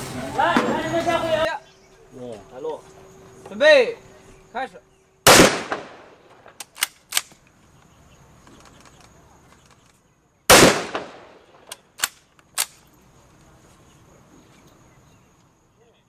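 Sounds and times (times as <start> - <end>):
loud rifle shot echoing: 5.2 - 7.3, 10.5 - 11.7
rifle bolt clicking: 6.4 - 7.4, 11.6 - 12.8.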